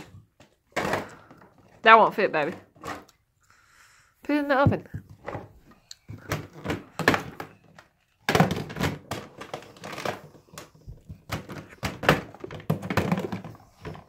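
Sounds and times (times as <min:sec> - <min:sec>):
plastic toy knocks and clatters: 0:04.6 - 0:14.0.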